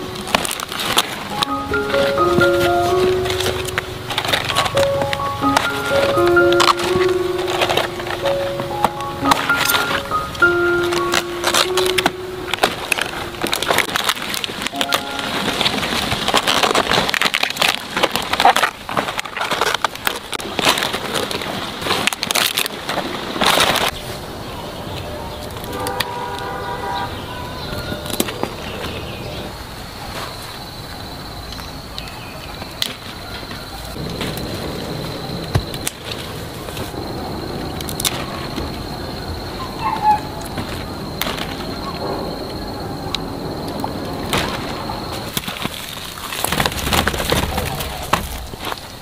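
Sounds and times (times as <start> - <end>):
thin high tone: 0.0 - 16.8
cabbage leaves crunching and snapping: 0.0 - 24.0
vines rustling and clicking: 0.0 - 26.5, 27.6 - 49.0.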